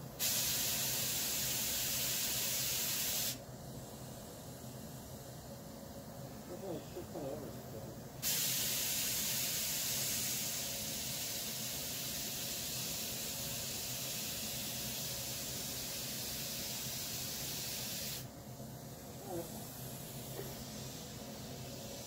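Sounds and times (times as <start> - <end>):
paint spray gun hissing: 0.2 - 3.4, 8.2 - 18.3, 19.4 - 22.0.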